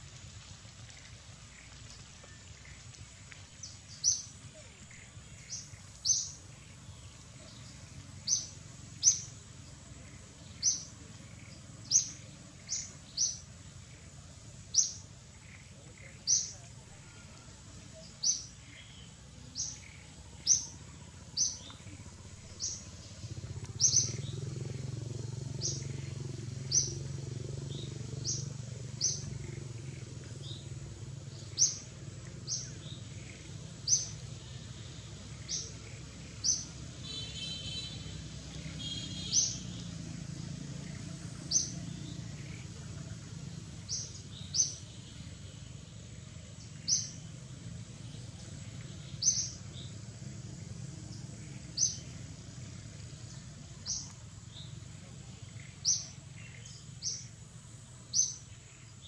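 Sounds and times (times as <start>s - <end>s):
bird chirping: 3.6s - 14.1s, 14.7s - 17.2s, 17.9s - 34.3s, 35.3s - 39.9s, 40.8s - 43.1s, 43.8s - 45.6s, 46.4s - 59.0s.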